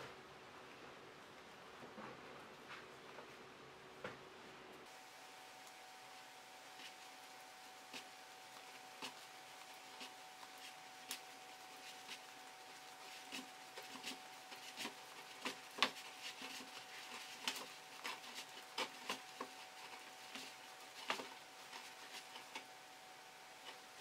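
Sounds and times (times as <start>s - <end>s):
yarn rubbing: 6.6s - 24.0s.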